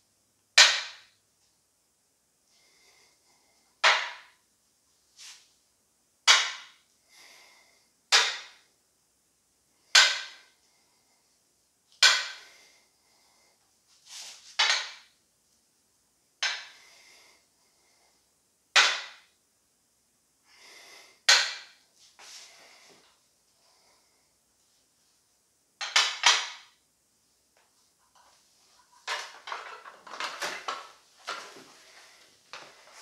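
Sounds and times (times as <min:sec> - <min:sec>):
faint breaths: 0:02.4 - 0:03.8, 0:07.0 - 0:08.0, 0:09.6 - 0:11.5, 0:12.2 - 0:14.4, 0:16.6 - 0:18.4, 0:20.4 - 0:21.3, 0:22.0 - 0:24.6, 0:31.3 - 0:33.0.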